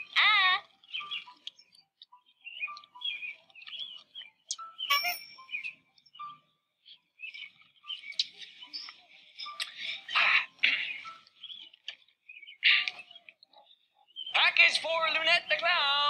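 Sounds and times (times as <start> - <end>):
birds chirping: 0.0 - 16.0
light background music: 0.0 - 16.0
sharp ding-like click: 4.9 - 5.5.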